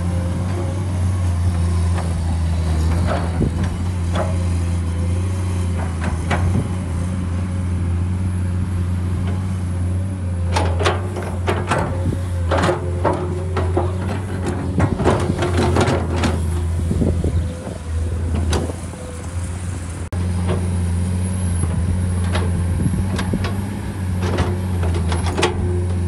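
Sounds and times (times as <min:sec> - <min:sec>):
excavator diesel engine running: 0:00.0 - 0:26.0
clanks and knocks: 0:05.6 - 0:06.8, 0:10.5 - 0:19.0.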